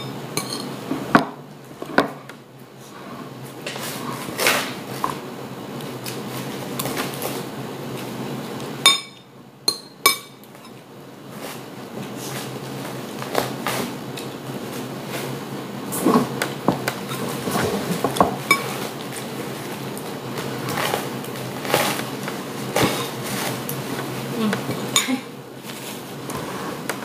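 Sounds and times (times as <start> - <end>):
dishes and cutlery clinking: 0.0 - 0.8.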